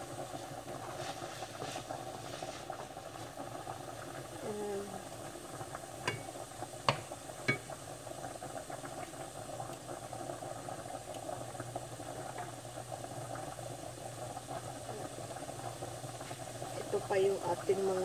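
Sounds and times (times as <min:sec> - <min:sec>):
food simmering in frying pan: 0:00.0 - 0:18.0
wooden spatula knocking on pan: 0:06.1 - 0:07.7.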